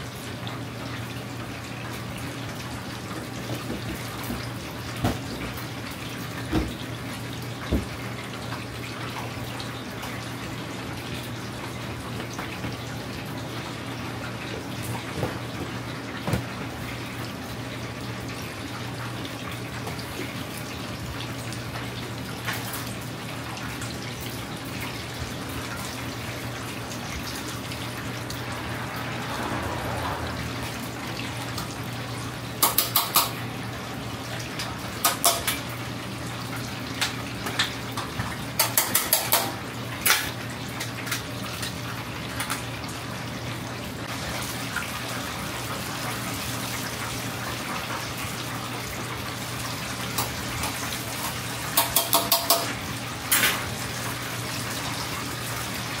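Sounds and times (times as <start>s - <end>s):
oil sizzling in deep fryer: 0.0s - 56.0s
tongs clicking against fryer: 32.6s - 33.4s, 35.0s - 35.7s, 37.0s - 40.3s, 50.1s - 53.6s.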